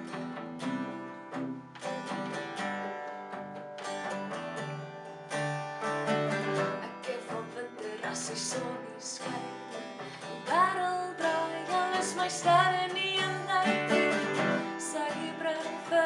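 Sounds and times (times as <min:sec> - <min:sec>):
acoustic guitars strumming chords: 0:00.0 - 0:16.0.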